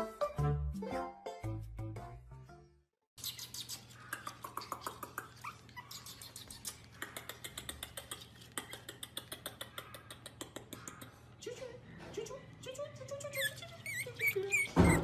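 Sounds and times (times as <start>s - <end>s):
puppy whimpering: 3.6s - 7.0s, 13.2s - 15.0s.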